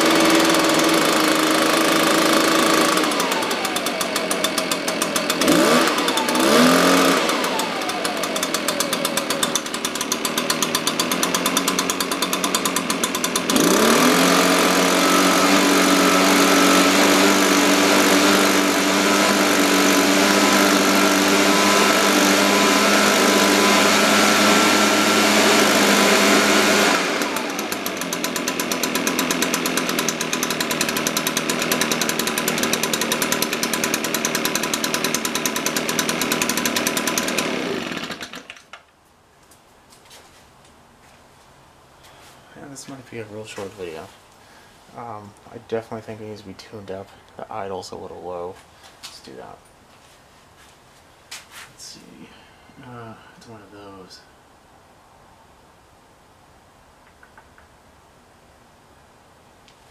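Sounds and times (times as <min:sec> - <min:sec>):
leaf blower engine: 0:00.0 - 0:38.8, 0:51.8 - 0:54.4.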